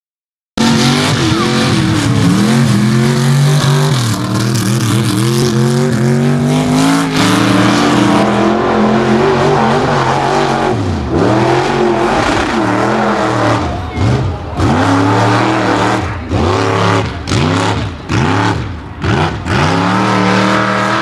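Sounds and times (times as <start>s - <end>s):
truck engines revving: 0.6s - 21.0s.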